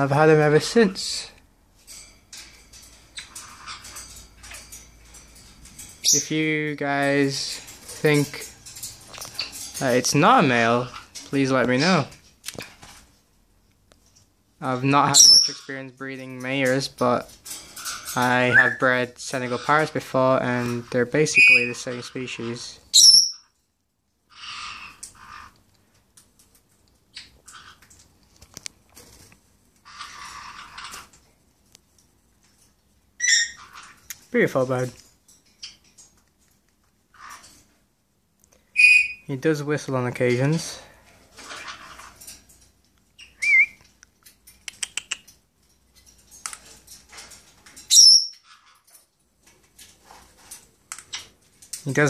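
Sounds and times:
parrot squawking: 15.0 - 15.7, 17.8 - 19.9, 20.8 - 23.5, 24.3 - 25.6, 29.8 - 31.1, 33.2 - 34.0, 38.7 - 39.3, 47.9 - 48.8
parrot high-pitched call: 22.9 - 23.5, 33.2 - 33.7, 38.8 - 39.2, 43.2 - 43.8, 47.9 - 48.6
parrot clicks and chirps: 43.0 - 45.4
parrot whistle: 43.3 - 43.8.

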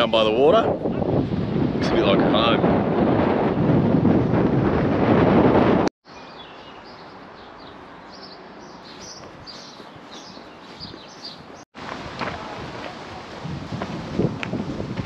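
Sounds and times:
wind rushing on microphone: 0.0 - 5.9, 9.0 - 15.0
small birds chirping: 6.0 - 11.6.

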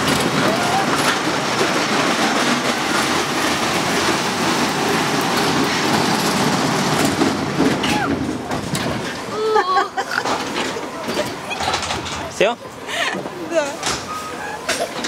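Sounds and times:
roller coaster cars rattling on track: 0.0 - 15.0.

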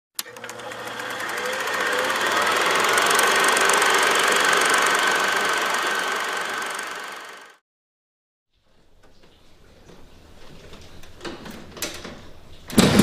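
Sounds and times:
small machine clattering: 0.2 - 7.6.

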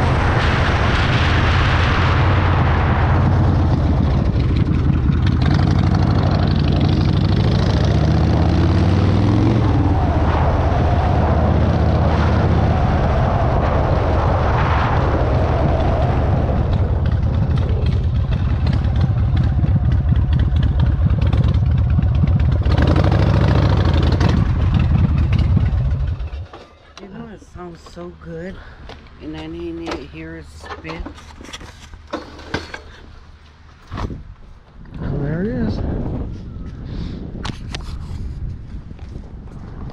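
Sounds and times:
motorcycle engine accelerating: 2.1 - 26.6.

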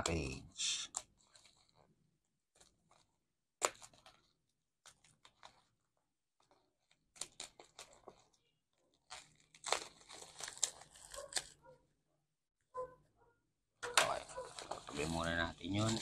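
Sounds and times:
plastic tearing and crinkling: 0.9 - 1.9, 2.5 - 11.6, 14.0 - 16.0
knife slitting plastic pouch: 8.9 - 11.6, 14.4 - 16.0.

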